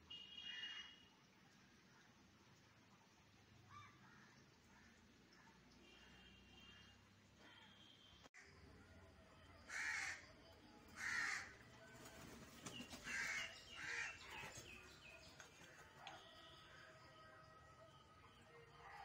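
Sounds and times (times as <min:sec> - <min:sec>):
crow cawing: 0:09.7 - 0:10.3, 0:11.0 - 0:11.6, 0:13.1 - 0:14.2.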